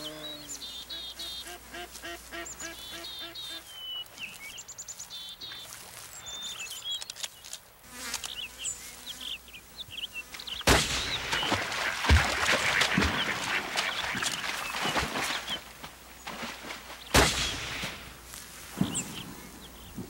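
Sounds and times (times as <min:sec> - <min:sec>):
small birds chirping: 0:00.0 - 0:20.0
rifle shot: 0:10.7 - 0:11.2, 0:17.1 - 0:18.0.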